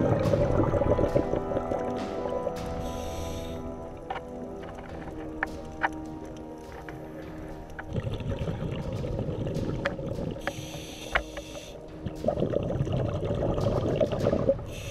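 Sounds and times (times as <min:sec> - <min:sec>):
underwater exhaled bubbles: 0:00.0 - 0:03.0
regulator inhalation hiss: 0:02.6 - 0:03.9, 0:10.4 - 0:11.9, 0:14.7 - 0:14.9.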